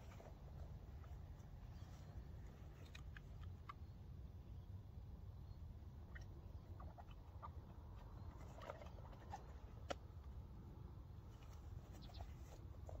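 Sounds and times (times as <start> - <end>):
faint bird chirps: 11.3 - 13.0.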